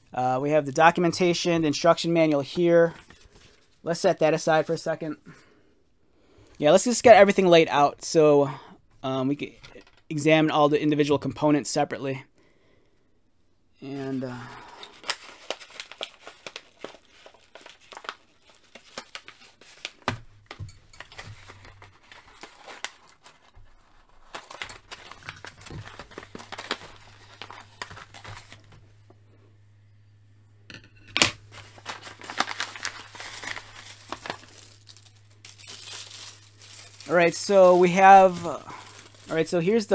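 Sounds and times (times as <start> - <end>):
paper bag rustling: 14.0 - 28.8, 31.4 - 39.9.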